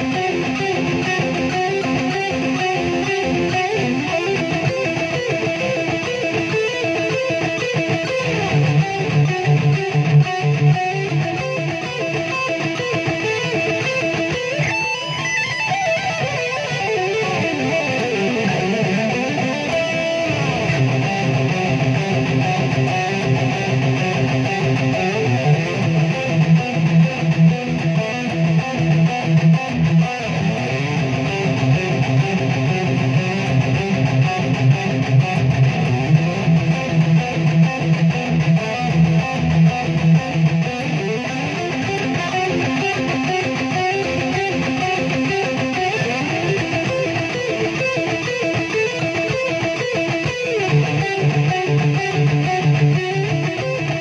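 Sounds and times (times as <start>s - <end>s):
electric guitar lead: 0.0s - 54.0s.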